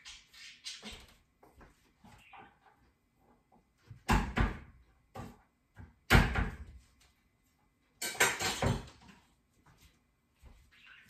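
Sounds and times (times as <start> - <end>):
kitchen handling sounds: 8.0 - 9.3.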